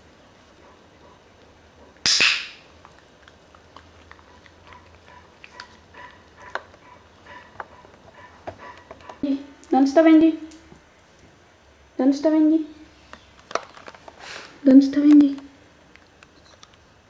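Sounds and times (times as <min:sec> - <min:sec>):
small dog huffing: 0:04.7 - 0:09.2.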